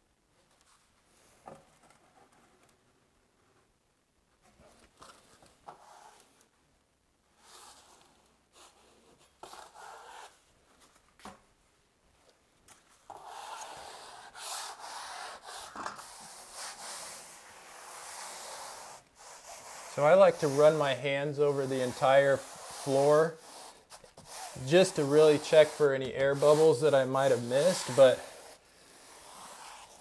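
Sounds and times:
rubbing membrane flat: 13.1s - 30.0s.

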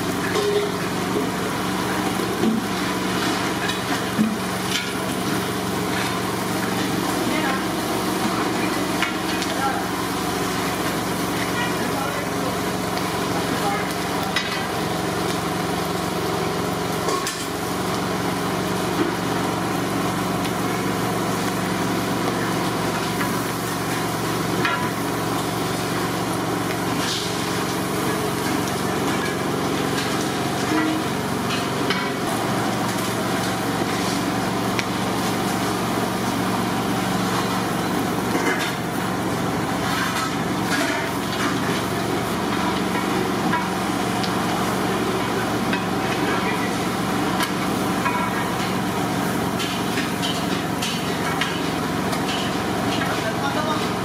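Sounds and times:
onions sizzling in oil: 0.0s - 54.0s.

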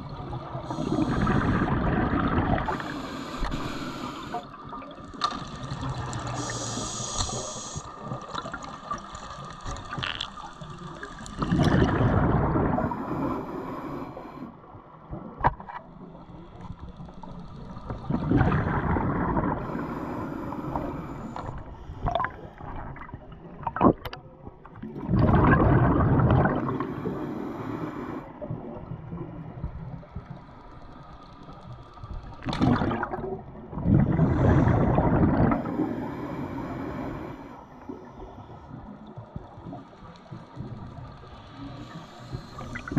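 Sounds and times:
diver exhaling bubbles underwater: 0.7s - 2.9s, 11.3s - 13.3s, 18.0s - 19.8s, 24.8s - 27.2s, 32.5s - 37.2s
regulator hiss: 2.7s - 4.5s, 6.2s - 8.0s.

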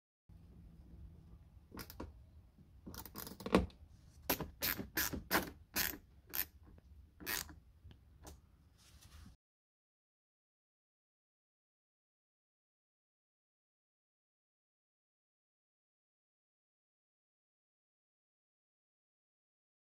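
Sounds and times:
screwdriver clicks and creaks: 1.8s - 2.1s, 2.8s - 7.6s.

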